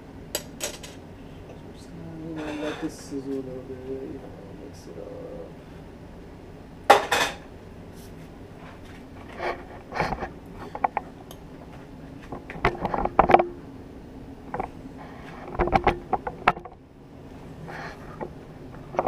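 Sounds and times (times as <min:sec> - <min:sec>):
frying pan clanking and scraping: 0:06.9 - 0:07.4.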